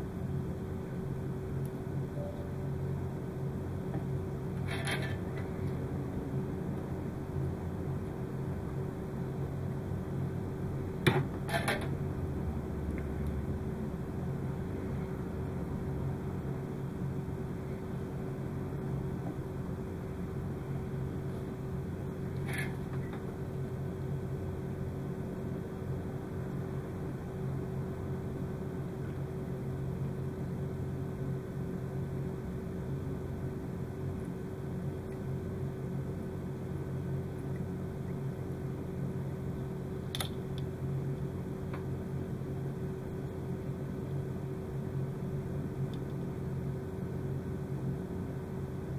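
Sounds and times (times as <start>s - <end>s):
low mechanical hum: 0.0s - 48.9s
faint small clicks: 40.1s - 40.7s.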